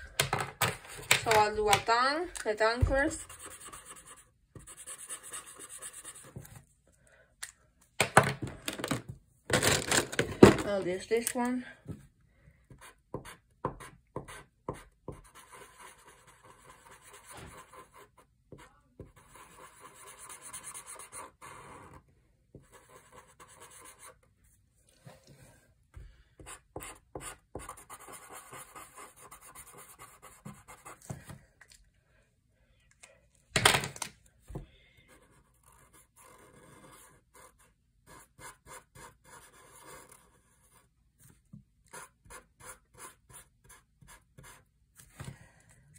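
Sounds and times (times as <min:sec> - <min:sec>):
marker scratching on paper: 0:02.6 - 0:06.5, 0:12.7 - 0:22.0, 0:22.6 - 0:24.2, 0:26.4 - 0:31.1, 0:35.1 - 0:41.3, 0:41.9 - 0:44.7.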